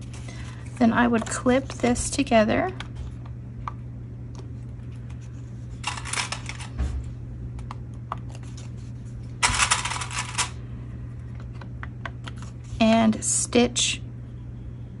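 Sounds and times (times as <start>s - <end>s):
steady low hum: 0.0s - 15.0s
paper rustling: 5.0s - 6.9s.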